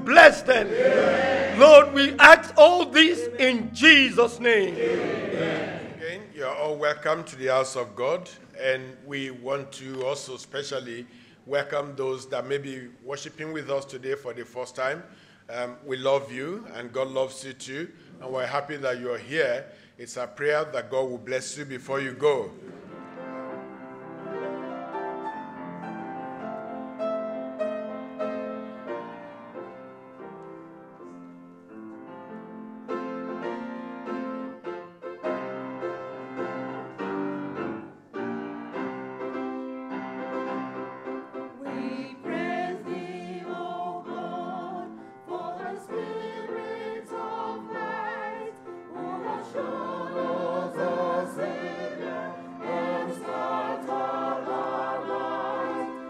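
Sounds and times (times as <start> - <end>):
choir singing a hymn: 0.0 - 6.2, 41.5 - 56.0
grand piano playing: 0.0 - 7.8, 22.2 - 56.0.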